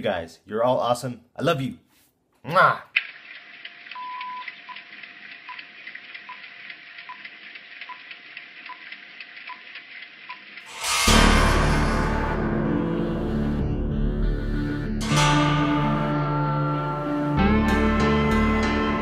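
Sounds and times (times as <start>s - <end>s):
crackling film hiss: 3.0s - 10.7s
loud music: 10.7s - 19.0s.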